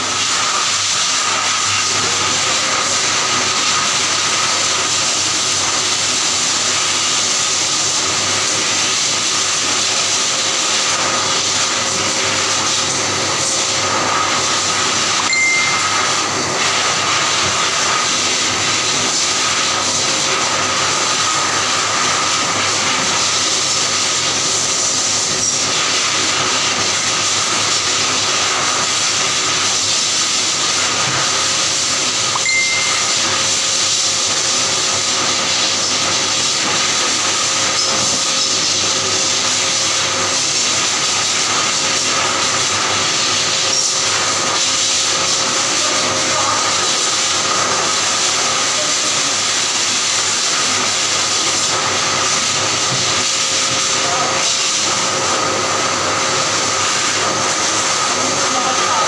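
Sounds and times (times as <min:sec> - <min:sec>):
air blower running: 0:00.0 - 0:59.0
brief high blips: 0:15.3 - 0:16.1.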